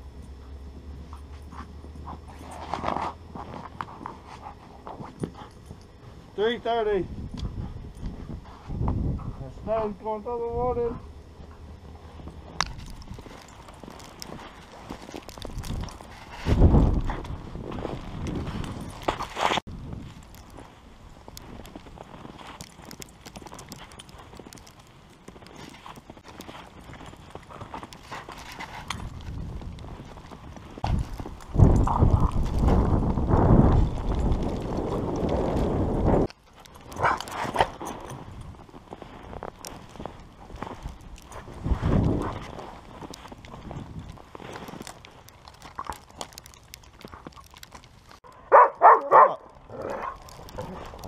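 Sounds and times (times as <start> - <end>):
footsteps crunching through snow: 11.3 - 48.2, 48.8 - 51.0
dog barking angrily: 48.5 - 50.2.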